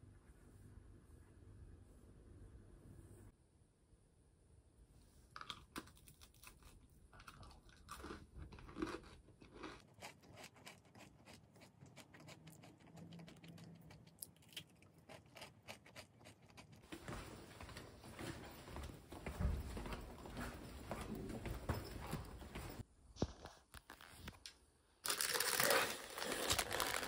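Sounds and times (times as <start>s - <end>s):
crunching and chewing biscuit: 5.3s - 16.9s, 25.0s - 27.0s.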